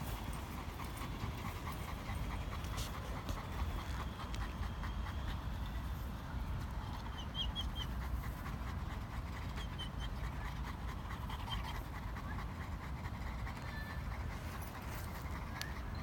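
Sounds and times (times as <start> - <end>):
dogs panting: 0.0 - 16.0.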